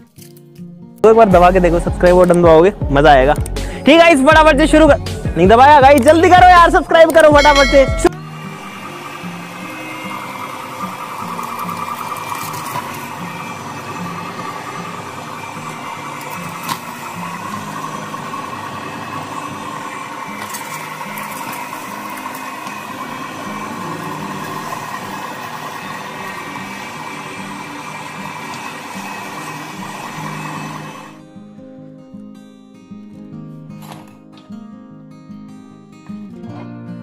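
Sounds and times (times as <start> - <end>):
electric meat grinder running: 8.2 - 31.2.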